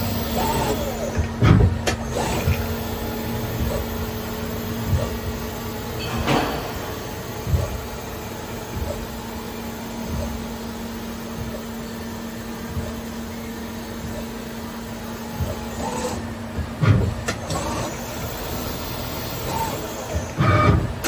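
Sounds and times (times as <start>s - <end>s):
loud clunk: 6.0s - 8.9s.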